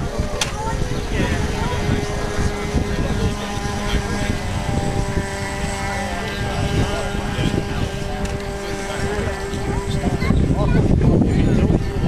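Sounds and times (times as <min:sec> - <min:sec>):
model boat motor running: 0:00.0 - 0:12.0.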